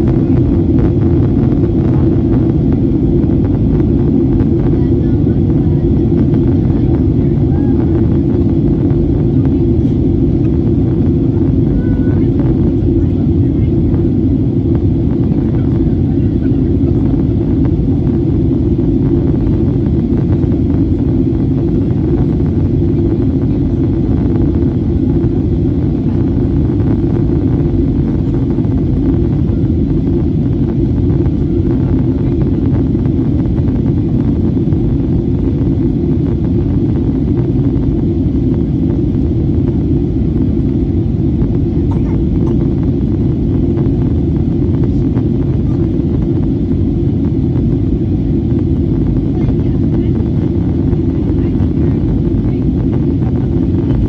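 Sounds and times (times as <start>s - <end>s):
jet engines in aircraft cabin: 0.0s - 54.0s.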